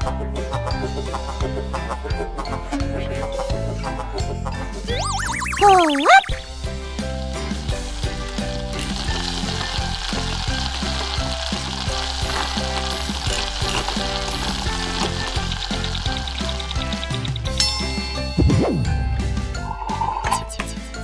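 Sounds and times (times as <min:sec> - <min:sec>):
light background music: 0:00.0 - 0:21.0
food sizzling in a pan: 0:07.4 - 0:17.2.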